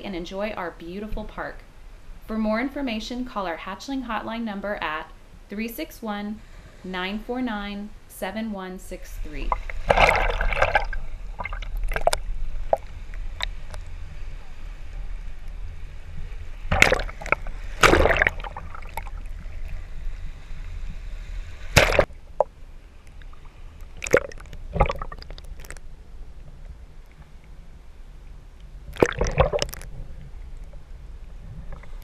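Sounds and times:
waves splashing: 0.0s - 25.9s, 28.9s - 30.5s
steady low rumble: 0.0s - 32.0s
surf sloshing and gurgling: 9.2s - 26.0s.

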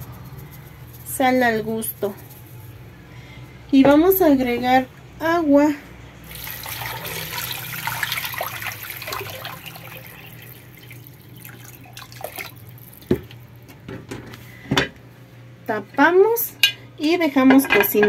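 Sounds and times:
water pouring into metal pot: 6.3s - 13.6s.

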